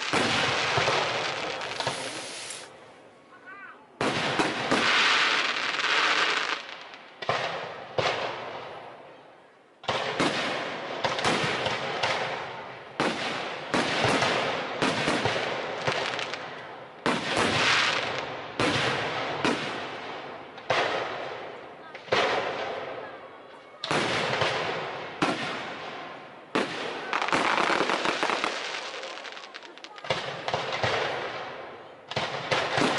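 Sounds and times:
firework shells bursting: 0:00.0 - 0:02.7.

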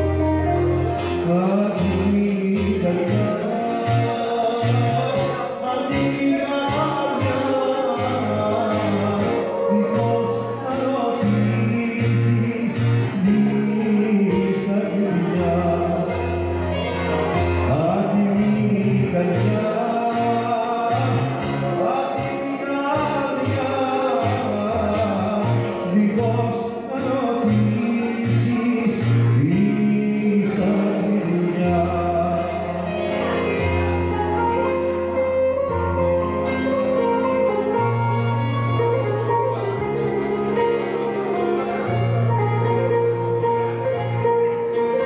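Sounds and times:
bass line: 0:00.0 - 0:45.0
electric keyboard: 0:00.0 - 0:45.0
man singing into microphone: 0:00.0 - 0:45.0
plucked strings: 0:00.0 - 0:45.0.

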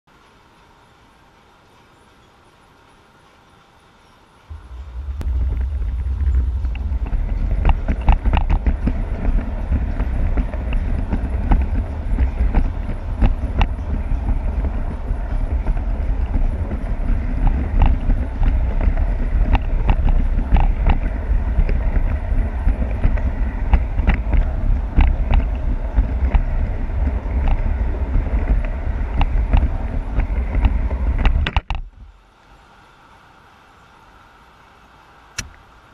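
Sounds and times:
model train rumbling: 0:04.4 - 0:31.5
wheels clicking over rail: 0:04.5 - 0:31.9.

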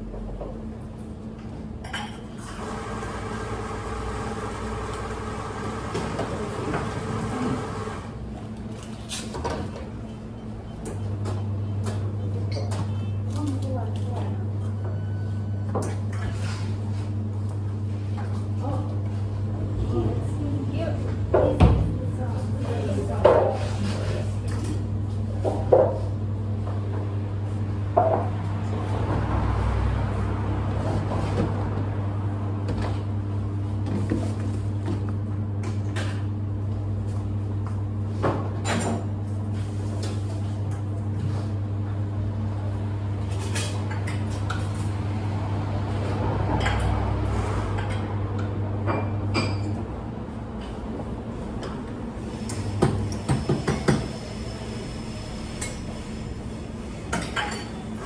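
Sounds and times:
espresso machine hum: 0:02.3 - 0:08.4
cups and metal clinking: 0:57.1 - 0:57.8.

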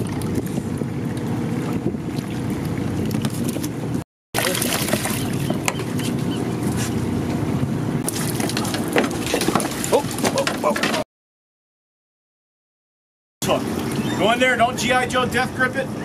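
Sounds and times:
boat machinery rumbling: 0:00.0 - 0:11.0, 0:13.4 - 0:16.0
fish splashing in water: 0:04.4 - 0:06.9, 0:08.0 - 0:10.8.

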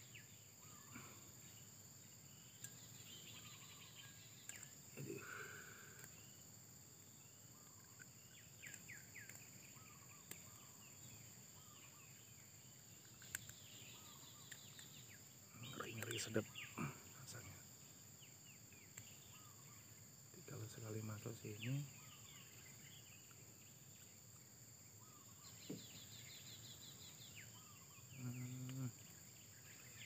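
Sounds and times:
bird chirps: 0:00.0 - 0:30.0
faint insect drone: 0:00.0 - 0:30.0.

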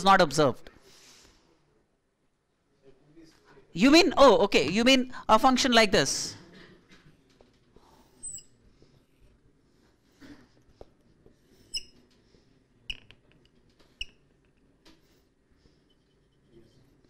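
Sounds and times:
marker squeaking on whiteboard: 0:08.1 - 0:08.6, 0:10.7 - 0:12.3, 0:12.9 - 0:15.2
marker scratchy ticks: 0:11.6 - 0:12.0.

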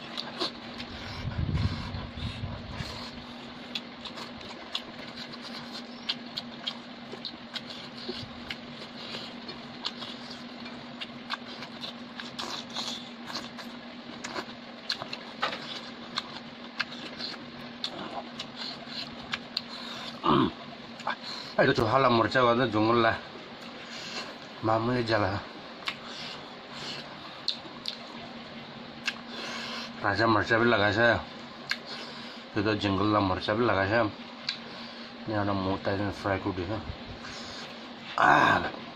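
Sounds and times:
wet chewing and lip-smacking: 0:00.0 - 0:21.6, 0:25.8 - 0:28.4, 0:29.0 - 0:29.9, 0:31.6 - 0:32.2, 0:34.4 - 0:34.7
steady low hum: 0:00.0 - 0:38.9.

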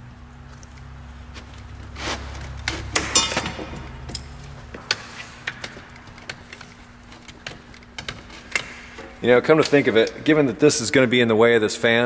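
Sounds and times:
rubbery scrapes: 0:01.4 - 0:02.9.

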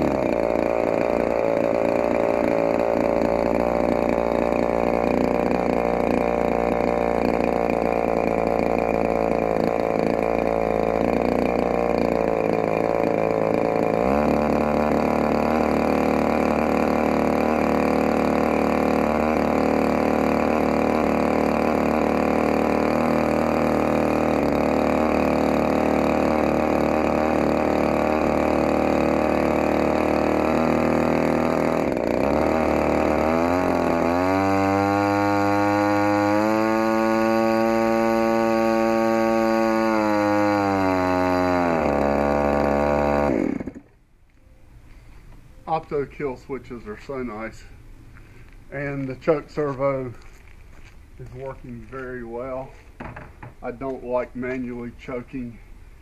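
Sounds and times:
model aircraft engine running: 0:00.0 - 0:43.9.

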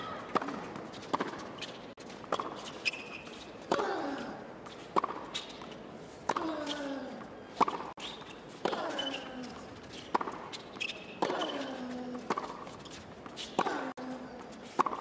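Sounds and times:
sneaker squeak on court: 0:02.4 - 0:03.5, 0:09.9 - 0:11.6
racket hitting ball: 0:10.1 - 0:11.7.

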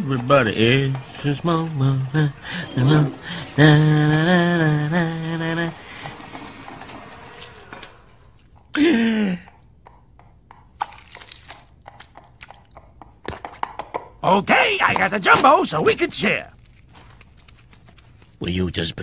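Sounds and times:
man humming: 0:00.0 - 0:06.1.

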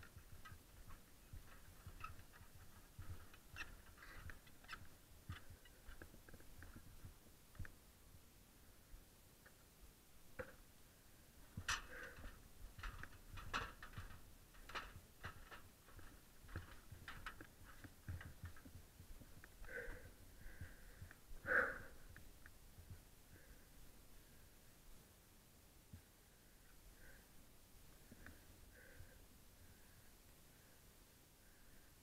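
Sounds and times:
hands and feet climbing a ladder: 0:00.0 - 0:07.8, 0:11.4 - 0:23.5.

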